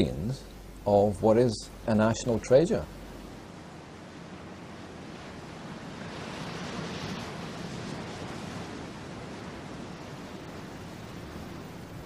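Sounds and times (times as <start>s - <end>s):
surf breaking on a beach: 3.0s - 12.0s.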